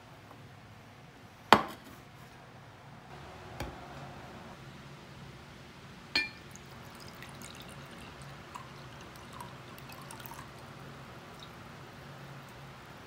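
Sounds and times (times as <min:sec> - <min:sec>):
glass clinking on glass: 0:06.2 - 0:06.4
wine pouring with glugs: 0:06.2 - 0:11.7.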